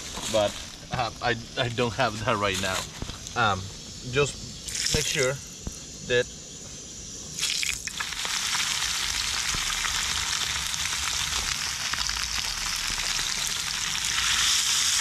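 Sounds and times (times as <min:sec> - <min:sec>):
fish sizzling in hot oil: 0:04.7 - 0:05.3, 0:07.4 - 0:15.0.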